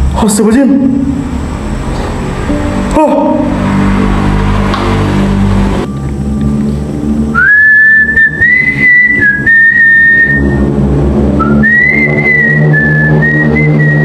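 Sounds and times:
low steady drone: 0.0 - 14.0
high whistling: 7.3 - 14.0.

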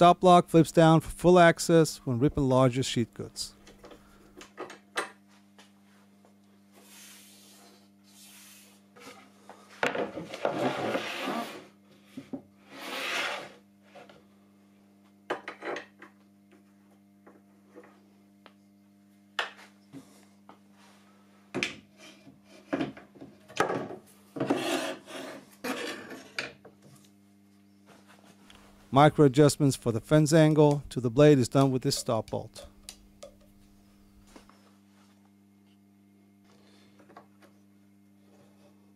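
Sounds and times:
faint steady low hum: 13.4 - 38.9.

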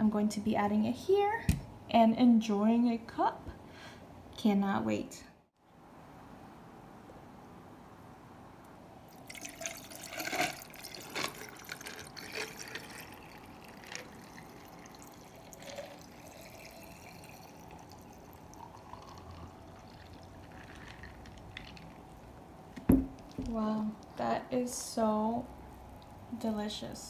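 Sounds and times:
liquid pouring into glass carafe: 9.1 - 22.2
ice cracking and clinking: 9.2 - 22.1.

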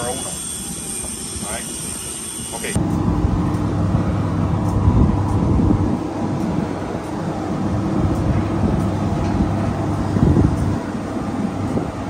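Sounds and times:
low mechanical drone: 0.0 - 12.0
low rumble: 2.8 - 12.0.

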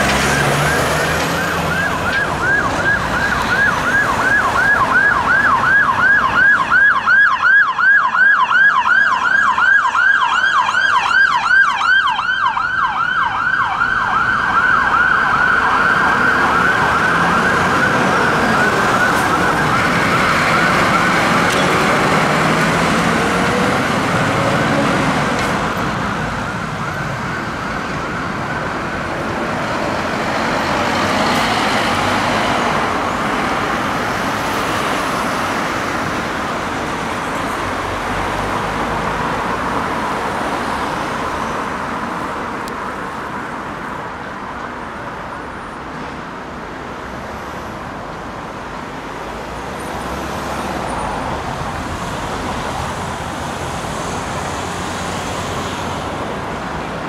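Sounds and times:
traffic noise: 0.0 - 57.0
ambulance siren yelping: 0.2 - 22.5.

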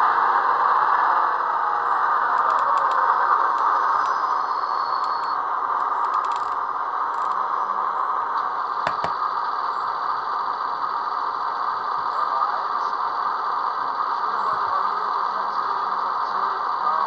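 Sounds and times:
diesel locomotive engine running: 0.0 - 17.0
sharp clicks: 2.4 - 4.3, 4.9 - 6.6, 7.2 - 7.4.

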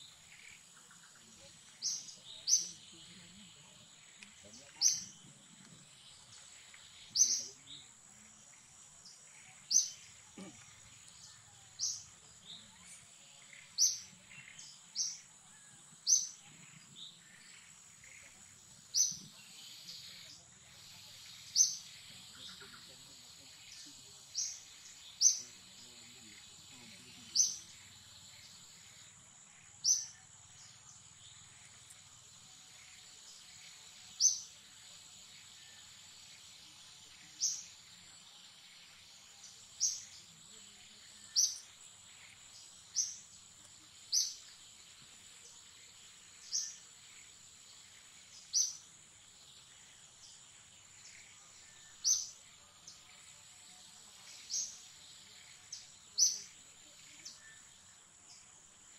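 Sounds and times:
high insect drone: 0.0 - 58.9.

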